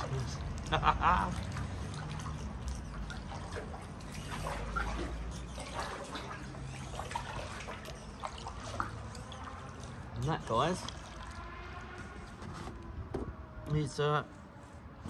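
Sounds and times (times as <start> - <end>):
water dripping off paddle: 0.0 - 12.4
small splashes: 0.0 - 12.8
kayak paddle in water: 0.0 - 13.6.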